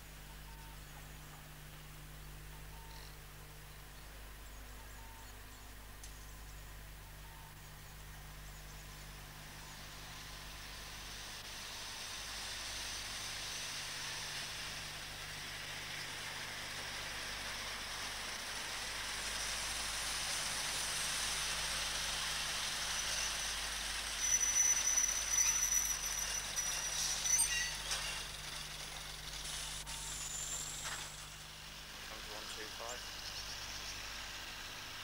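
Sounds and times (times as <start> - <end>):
train rolling past: 9.3 - 35.0
uneven train clatter: 15.6 - 31.4
high wheel squeal: 22.8 - 31.3.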